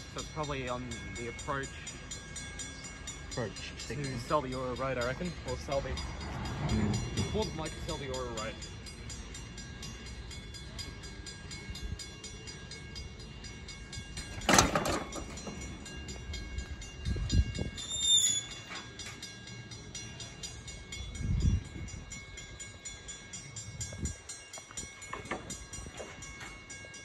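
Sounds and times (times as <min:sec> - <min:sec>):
steam locomotive shunting: 0:14.1 - 0:16.6.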